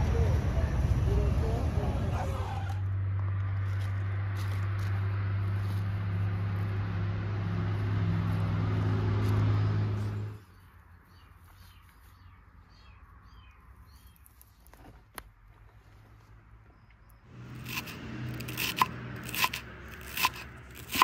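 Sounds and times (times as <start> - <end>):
engine running with low hum: 0.0 - 10.7, 15.6 - 21.0.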